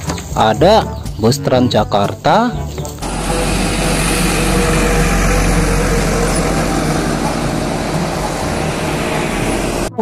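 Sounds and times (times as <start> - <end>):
street traffic: 2.8 - 10.0
bus engine running: 3.0 - 10.0.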